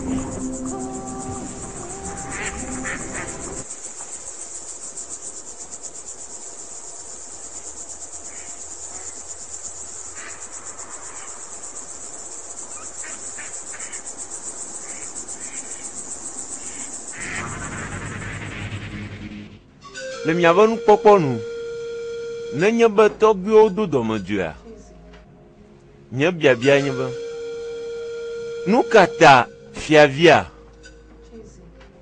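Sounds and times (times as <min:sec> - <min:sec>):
music: 0:00.0 - 0:03.7, 0:17.2 - 0:32.0
crickets chirping: 0:00.0 - 0:18.8, 0:19.7 - 0:31.8.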